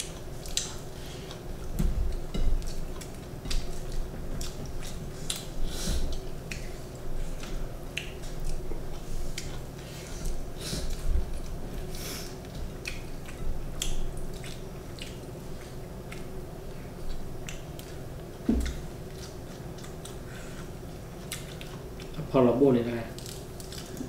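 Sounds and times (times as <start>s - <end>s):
chewing and lip-smacking: 0.0s - 22.3s, 23.1s - 24.0s.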